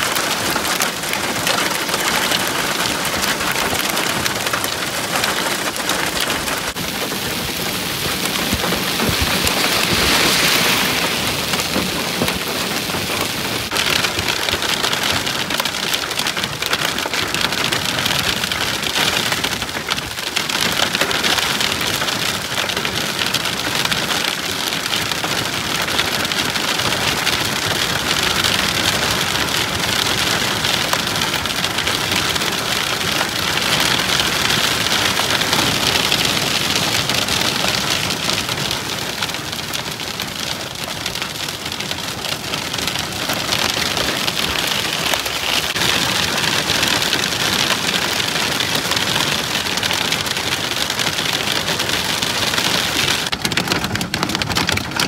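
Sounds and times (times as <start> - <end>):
heavy rain pelting a vehicle: 0.0 - 55.0.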